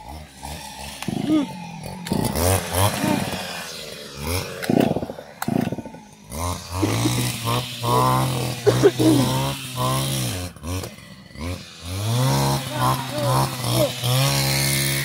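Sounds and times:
person talking or singing: 0:12.6 - 0:14.0.

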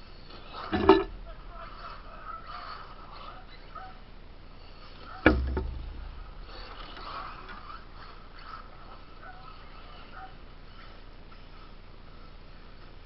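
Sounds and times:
sharp knock with low thud: 0:05.3 - 0:06.7.

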